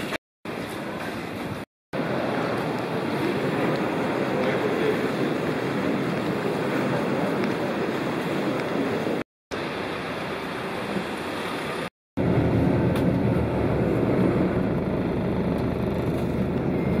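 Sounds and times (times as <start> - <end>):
vehicle driving rumble: 10.8 - 17.0.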